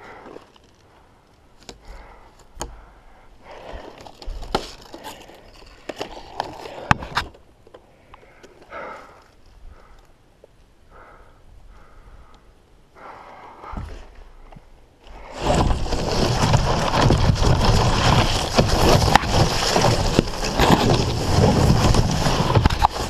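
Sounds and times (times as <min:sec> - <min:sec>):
faint rustling: 0:13.6 - 0:23.0
crashing through dry brush: 0:15.1 - 0:23.0.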